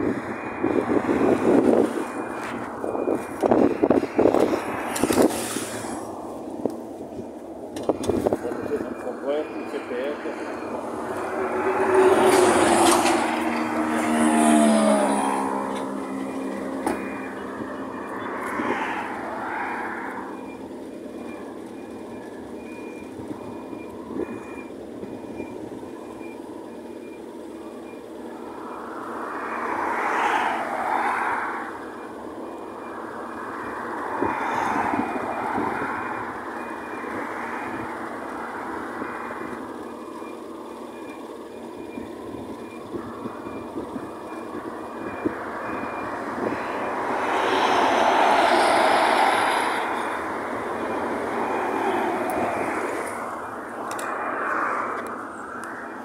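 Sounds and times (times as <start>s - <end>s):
low engine hum: 0.0s - 56.0s
vehicles passing: 0.0s - 56.0s
short high warning beeps: 8.6s - 12.1s.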